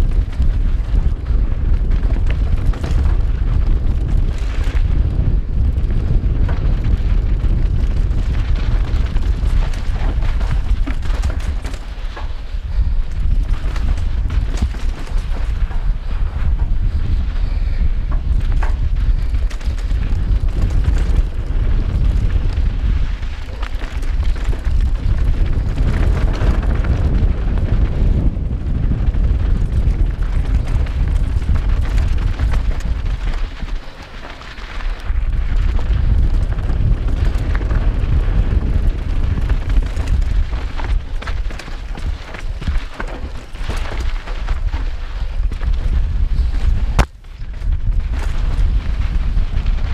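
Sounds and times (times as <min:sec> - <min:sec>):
bike tyres crunching over dirt: 0:00.0 - 0:49.9
wind buffeting microphone: 0:00.0 - 0:49.9.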